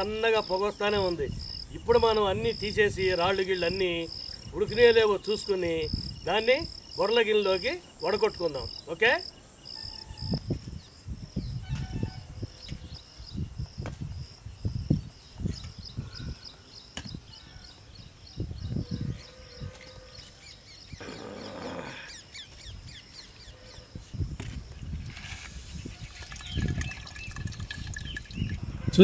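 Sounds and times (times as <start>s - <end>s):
crickets chirping: 0.0s - 29.0s
bird calls: 15.4s - 24.1s.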